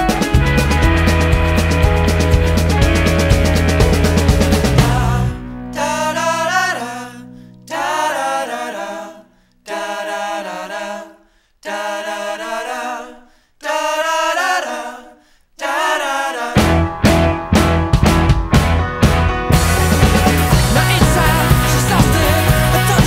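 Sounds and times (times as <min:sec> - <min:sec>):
full band with drums: 0:00.0 - 0:05.3, 0:16.6 - 0:23.0
person singing phrases: 0:04.8 - 0:16.6, 0:20.3 - 0:23.0.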